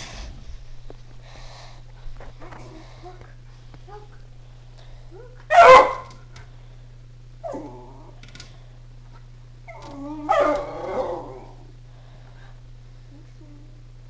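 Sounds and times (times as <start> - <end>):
dog barking: 5.5 - 6.2, 10.3 - 10.6
dog whining: 9.7 - 11.6.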